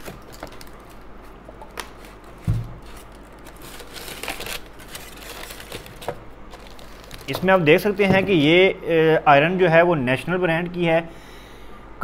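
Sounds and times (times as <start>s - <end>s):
cardboard and polystyrene rustling: 1.8s - 8.6s.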